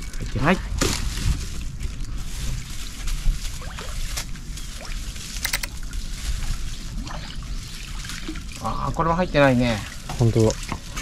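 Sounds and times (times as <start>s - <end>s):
trap clicking and rattling: 5.4s - 5.9s.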